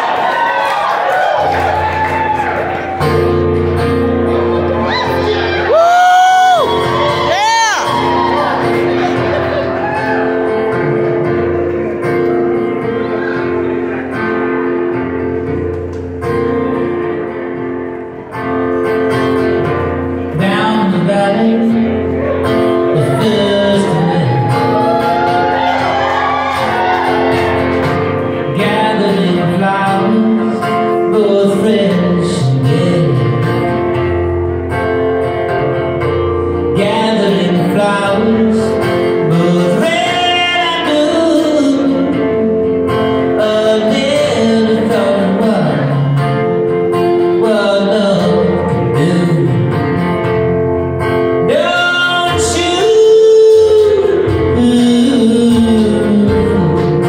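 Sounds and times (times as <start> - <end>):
strummed acoustic guitars: 0.0 - 57.0
person singing: 18.8 - 34.1, 36.3 - 50.6, 51.2 - 57.0.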